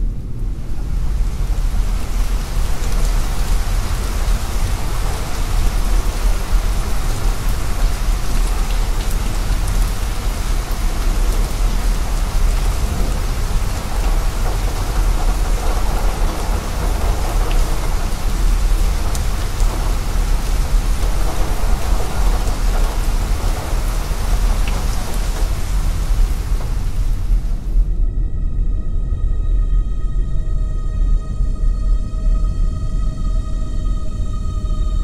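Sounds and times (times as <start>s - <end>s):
dense rain-like noise: 0.0s - 28.1s
deep low rumble: 0.0s - 35.0s.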